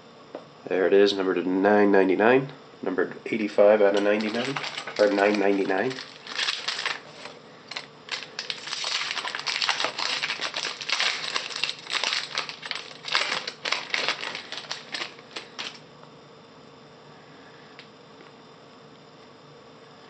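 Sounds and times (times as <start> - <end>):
wrapper crinkling and tearing: 3.9 - 15.8.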